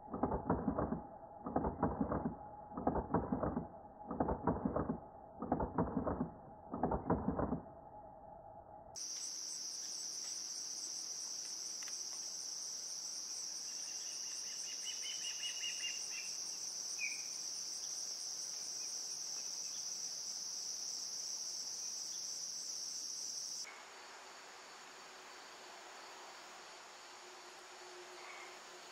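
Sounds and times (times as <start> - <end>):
faint chirp: 7.9 - 21.0
insects trilling: 9.0 - 28.9.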